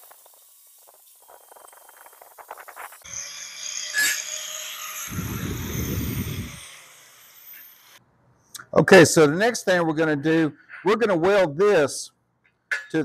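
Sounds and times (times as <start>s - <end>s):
angle grinder whirring: 0.2s - 8.0s.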